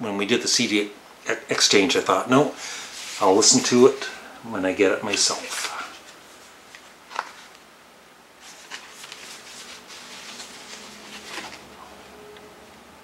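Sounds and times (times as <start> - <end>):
paper and card rustling: 5.0 - 7.6, 8.4 - 12.0.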